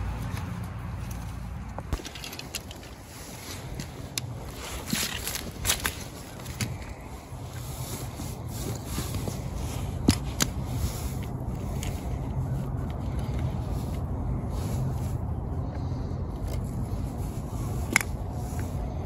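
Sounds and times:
steady low rumble: 0:00.0 - 0:19.0
boots shifting on dry leaves: 0:02.8 - 0:11.3.

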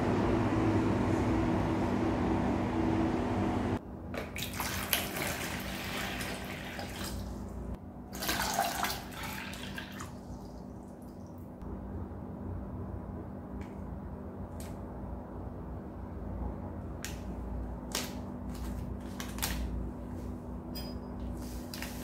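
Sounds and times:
steady low hum: 0:00.0 - 0:04.4, 0:05.4 - 0:22.0
water pouring into plastic bowl: 0:04.2 - 0:07.3, 0:08.2 - 0:10.4.

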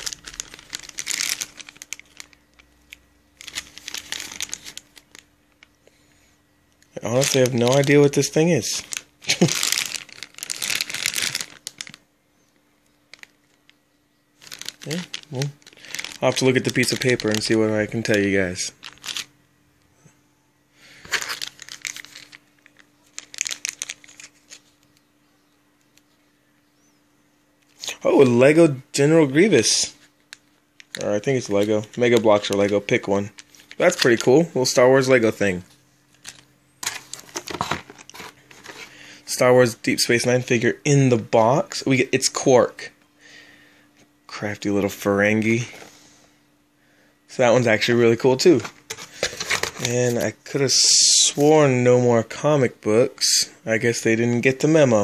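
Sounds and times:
plastic bag crinkling: 0:00.0 - 0:05.8, 0:06.8 - 0:12.1, 0:12.8 - 0:13.8, 0:14.4 - 0:19.4, 0:20.9 - 0:25.1, 0:29.6 - 0:39.5, 0:48.5 - 0:51.2.

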